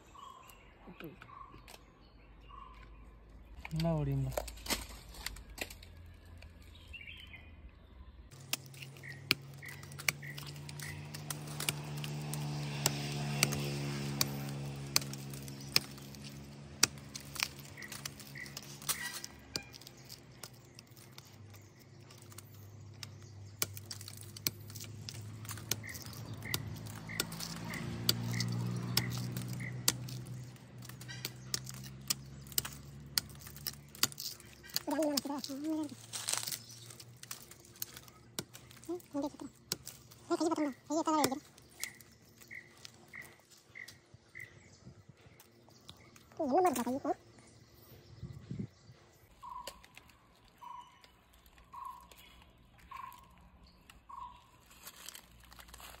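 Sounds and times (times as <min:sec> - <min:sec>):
billhook chopping bark: 0:08.3 - 0:43.9.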